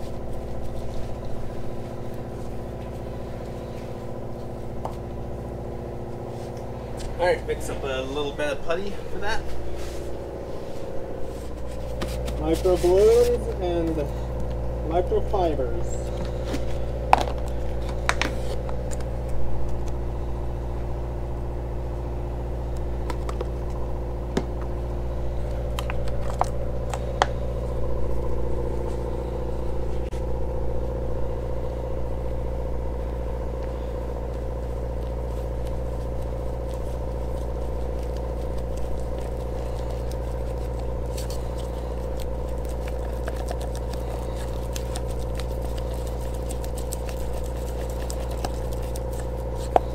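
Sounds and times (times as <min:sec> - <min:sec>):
motor humming: 0:00.0 - 0:49.9
stir stick scraping in plastic cup: 0:35.3 - 0:49.9.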